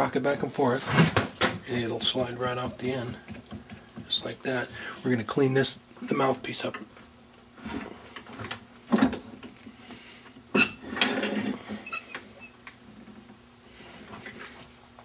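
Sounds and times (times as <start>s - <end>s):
metal scraping and handling: 10.6s - 12.2s.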